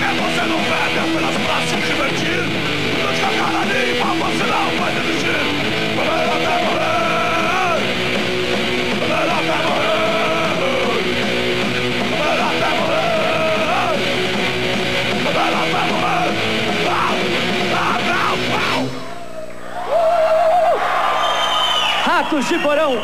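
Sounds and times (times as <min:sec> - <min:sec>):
singer shouting: 0:00.0 - 0:08.0, 0:08.9 - 0:11.1, 0:11.8 - 0:14.2, 0:15.2 - 0:20.8
punk band playing live: 0:00.0 - 0:19.1.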